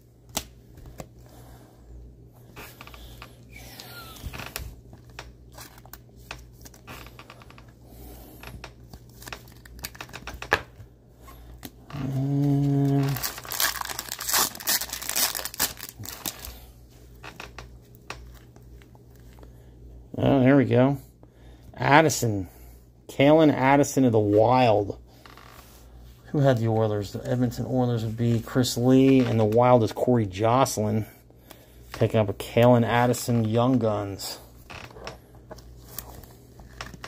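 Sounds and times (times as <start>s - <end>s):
low steady hum: 0.0s - 37.0s
cards and plastic rustling: 2.6s - 7.7s, 8.4s - 19.5s, 33.0s - 37.0s.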